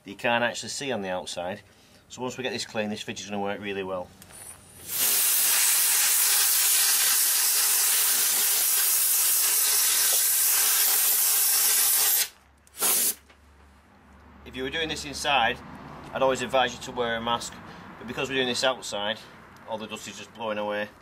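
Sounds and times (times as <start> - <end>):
compressed air blow gun hissing: 4.9 - 13.2.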